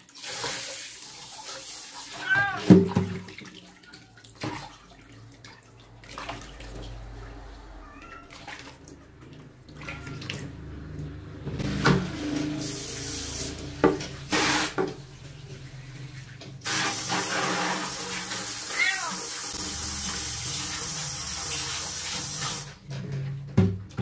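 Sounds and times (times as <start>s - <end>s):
water splashing in basin: 0.0s - 22.8s
spray water gushes: 11.2s - 22.8s.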